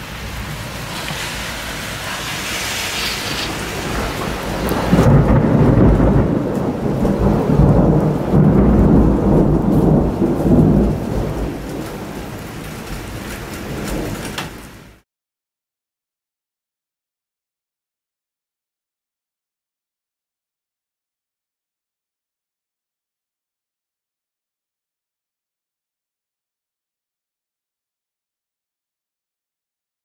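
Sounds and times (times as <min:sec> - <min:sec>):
rain falling: 0:00.0 - 0:15.0
thunder rumbling: 0:00.0 - 0:15.0.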